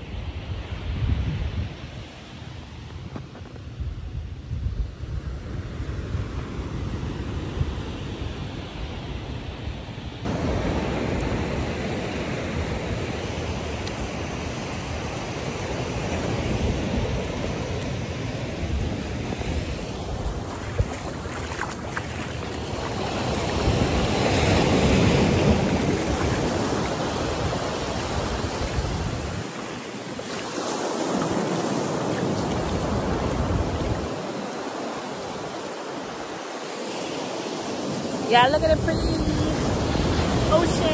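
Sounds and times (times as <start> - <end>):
wind buffeting microphone: 0.2 - 29.9
ocean surf breaking: 10.2 - 40.9.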